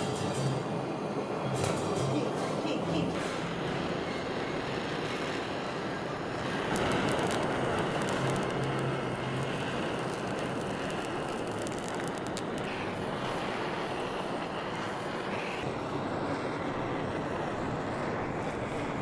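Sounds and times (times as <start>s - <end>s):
blowtorch flame hissing: 0.0s - 19.0s
faint crackles: 3.1s - 15.7s.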